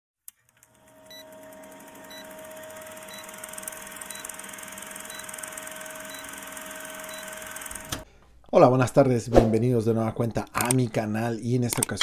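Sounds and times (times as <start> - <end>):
film projector clatter: 0.4 - 8.0.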